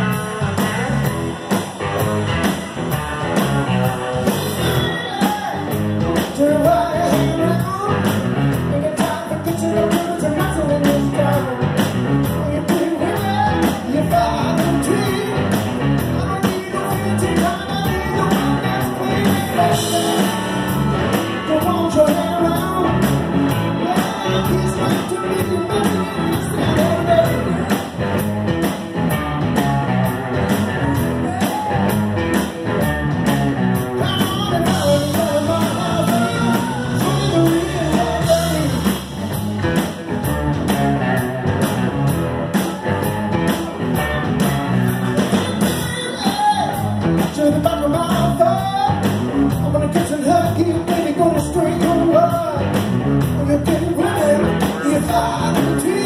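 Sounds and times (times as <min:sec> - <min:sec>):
electric guitar: 0:00.0 - 0:56.0
steady drum beat: 0:00.0 - 0:56.0
man singing: 0:04.4 - 0:27.9, 0:33.8 - 0:39.0, 0:44.9 - 0:56.0.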